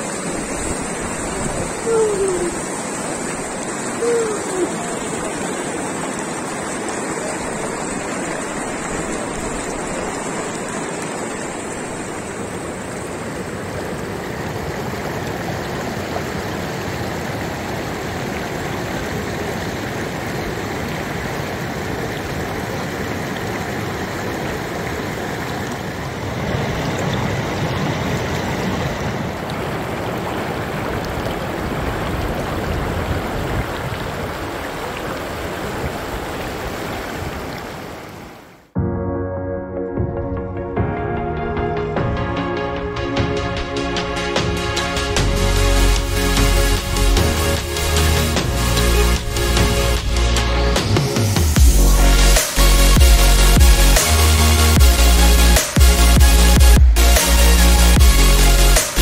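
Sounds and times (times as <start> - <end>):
stream rushing over rocks: 0.0 - 38.8.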